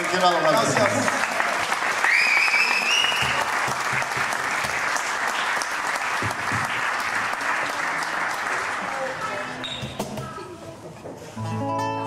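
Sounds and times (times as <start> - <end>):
audience applauding: 0.0 - 9.6
high whistle: 2.1 - 3.4.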